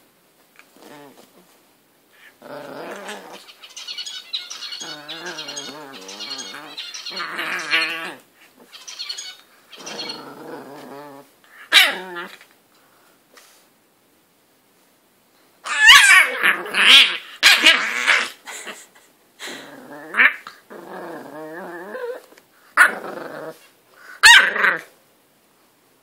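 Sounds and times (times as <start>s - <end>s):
puppy growling and barking: 2.2s - 3.5s, 4.6s - 8.7s, 9.8s - 12.4s, 15.6s - 18.4s, 19.5s - 25.0s.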